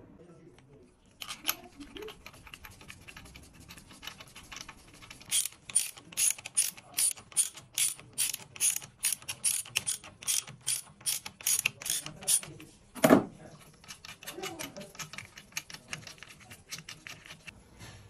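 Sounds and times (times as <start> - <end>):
ratchet wrench clicking: 5.2 - 12.5.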